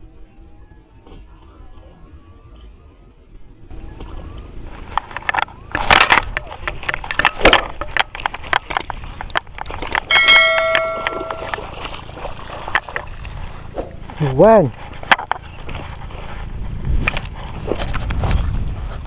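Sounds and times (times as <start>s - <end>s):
fishing reel clicks and knocks: 5.0s - 11.6s
bright bell chime: 10.1s - 11.8s.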